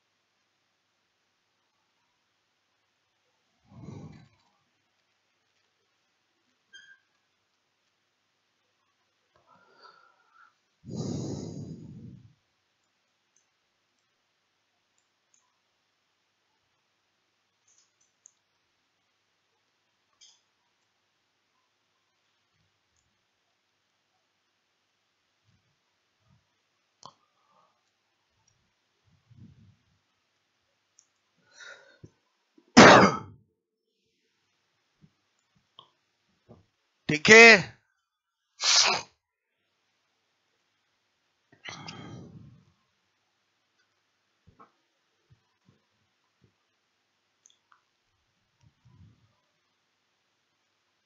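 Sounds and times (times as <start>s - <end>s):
puff of air on microphone: 10.9s - 12.3s, 41.7s - 42.6s
faint clicks: 12.8s - 14.2s, 14.9s - 15.7s, 17.5s - 18.6s, 20.0s - 21.0s, 30.9s - 31.3s, 47.4s - 48.0s
loud cough: 32.8s - 33.3s.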